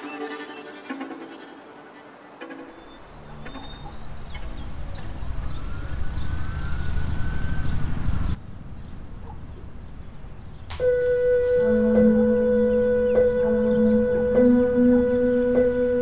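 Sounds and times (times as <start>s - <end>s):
siren wailing: 3.3s - 8.4s, 10.7s - 16.0s
low rumble: 3.4s - 10.7s
synthesizer chord: 10.7s - 16.0s.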